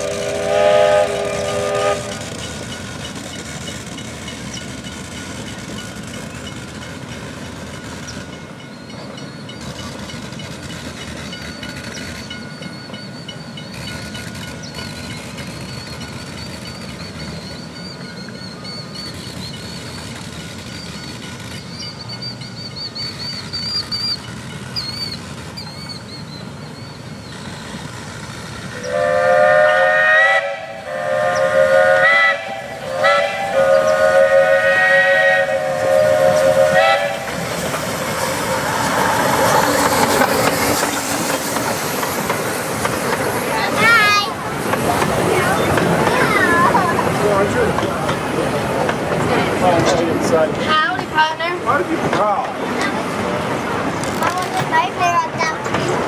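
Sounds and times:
steam train chime whistle: 0.0 - 2.8, 28.7 - 37.5
railcars clattering on track: 0.0 - 56.0.

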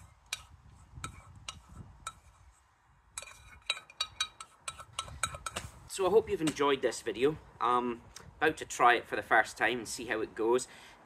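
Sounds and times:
spoon clinking in metal pot: 3.2 - 5.5.

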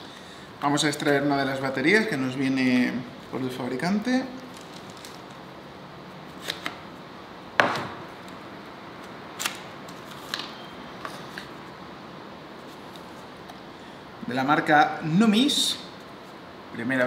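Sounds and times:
loud snap: 7.6 - 8.2.

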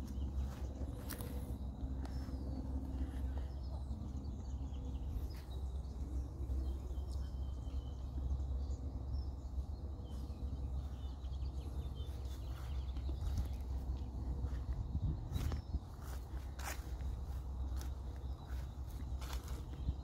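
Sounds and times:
faint bird chirps: 0.0 - 20.0
steady low rumble: 0.0 - 20.0.

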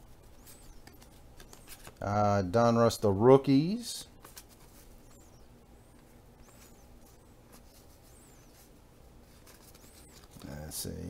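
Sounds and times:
cards being shuffled: 0.3 - 2.0, 4.2 - 5.0, 9.3 - 10.6
faint high chirps: 5.0 - 8.7.

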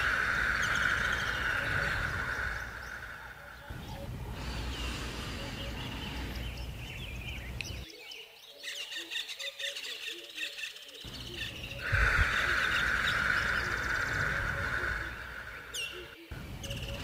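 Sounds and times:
steady hiss: 0.0 - 6.8, 11.1 - 17.0
birds chirping: 0.0 - 17.0.

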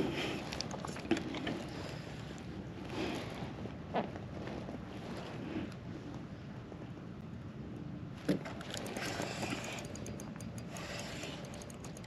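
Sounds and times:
fishing reel cranking: 8.6 - 12.0
light irregular ticking: 8.6 - 12.0.

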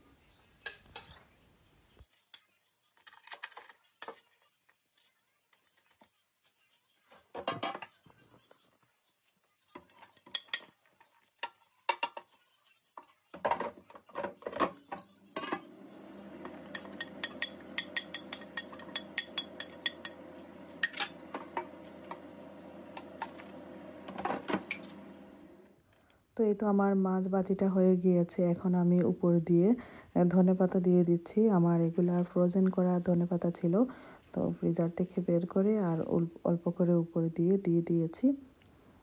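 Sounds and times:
metal spoon scraping ceramic plate: 16.5 - 22.2.

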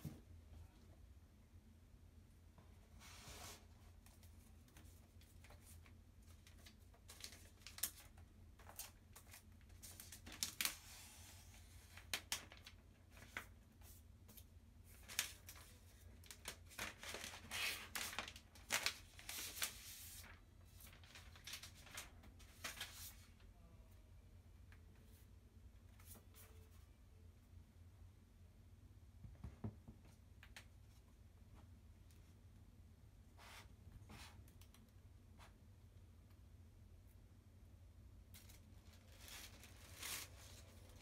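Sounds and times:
plastic film peeling and crinkling: 4.0 - 13.5, 14.9 - 23.4, 38.4 - 41.0.

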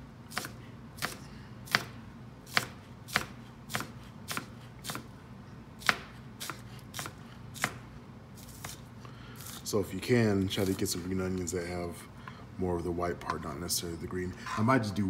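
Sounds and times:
knife chopping on cutting board: 0.3 - 5.1, 5.8 - 8.8.

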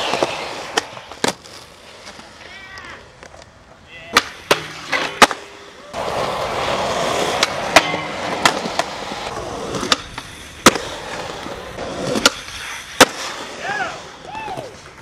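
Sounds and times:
skateboard landing clack: 0.0 - 2.2, 2.8 - 13.6
skateboard sliding on metal rail: 0.0 - 2.4, 4.2 - 15.0
skateboard wheels rolling on concrete: 0.0 - 15.0.

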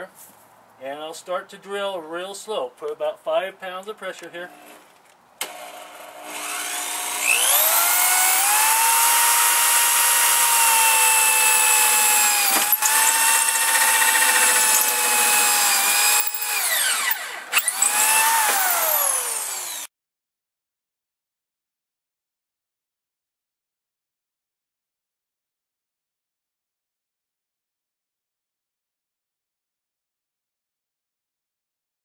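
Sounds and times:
electric drill drilling steel: 4.5 - 4.8, 5.4 - 19.9.

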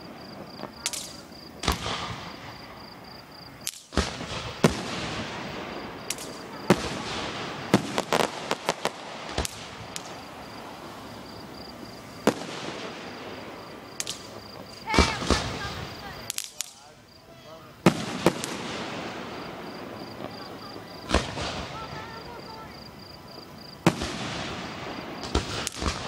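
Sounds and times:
fireworks bangs: 0.0 - 26.0.

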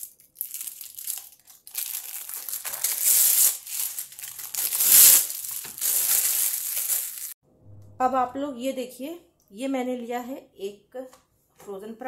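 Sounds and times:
plastic packaging crinkling: 0.0 - 7.4.

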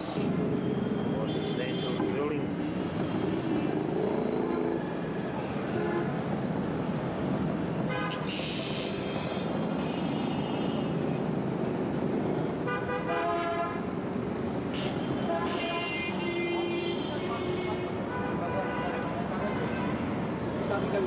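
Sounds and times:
traffic engines din: 0.0 - 21.0
vehicle horns tooting: 1.2 - 3.4, 7.9 - 11.0, 14.7 - 21.0.

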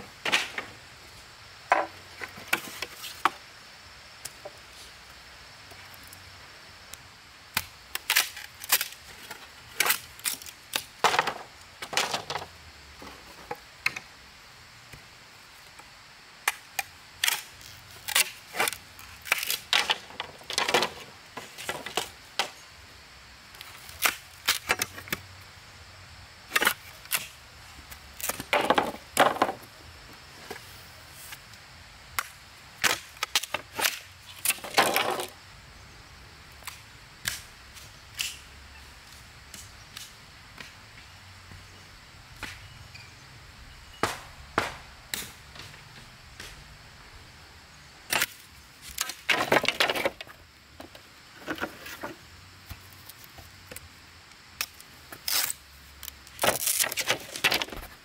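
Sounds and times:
sharp knocks and strikes: 44.0 - 45.7.

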